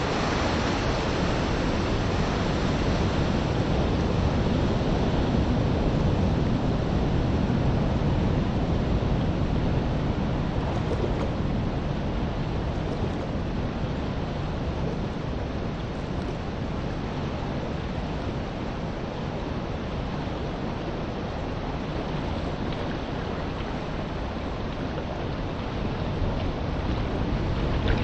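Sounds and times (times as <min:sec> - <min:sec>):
small waves washing on shore: 0:00.0 - 0:28.0
wind on microphone: 0:00.0 - 0:28.0.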